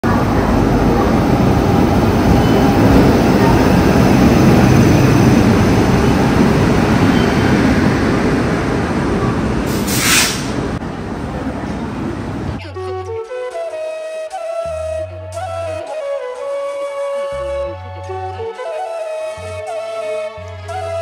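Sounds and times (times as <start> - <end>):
train wheels rumbling on rails: 0.0 - 12.6
brief hiss: 9.7 - 10.6.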